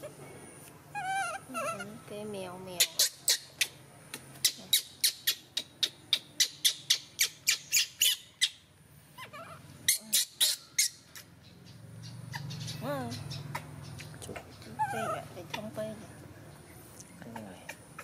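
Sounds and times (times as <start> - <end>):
bird chirping sharp chips: 2.7 - 8.6, 9.9 - 14.7.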